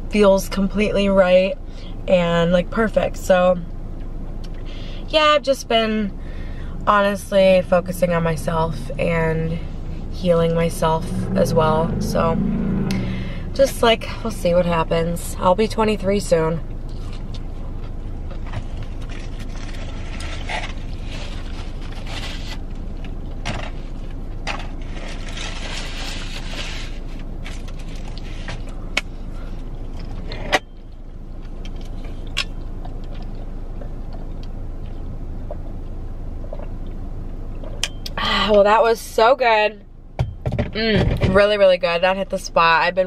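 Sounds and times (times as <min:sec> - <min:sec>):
low hum inside a car: 0:00.0 - 0:43.0
chewing: 0:29.9 - 0:37.8.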